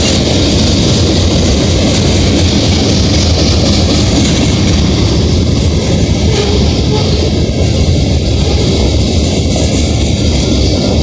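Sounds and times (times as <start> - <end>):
steel wheels on rail: 0.0 - 11.0.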